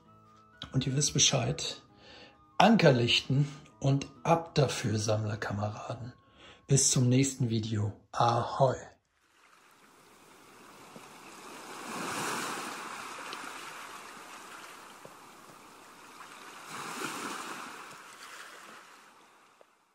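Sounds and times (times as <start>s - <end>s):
waves washing on shore: 9.4s - 19.6s.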